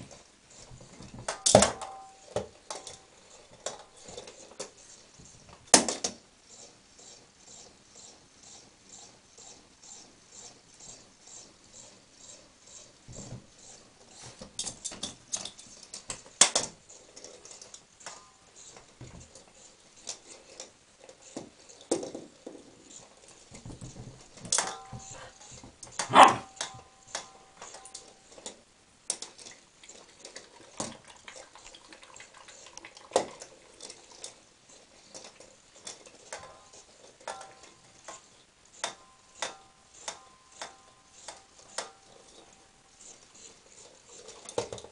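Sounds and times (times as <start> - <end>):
puppy barking in short yaps: 26.1 - 26.5.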